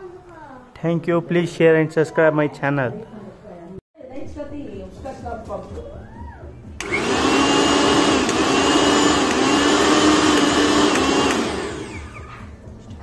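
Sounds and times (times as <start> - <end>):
mixer grinder motor whining: 6.8 - 12.4.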